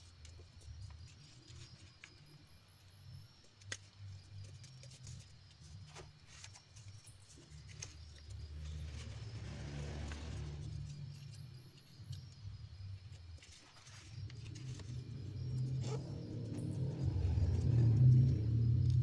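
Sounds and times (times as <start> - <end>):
paper rustling and creasing: 3.6 - 11.4, 13.0 - 19.0
low hum: 7.8 - 19.0.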